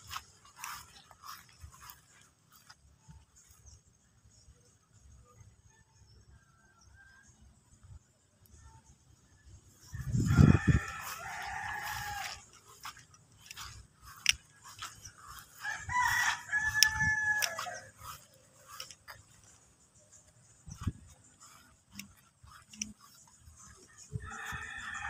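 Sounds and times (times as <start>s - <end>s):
rooster crowing: 9.8s - 20.1s, 20.7s - 25.0s.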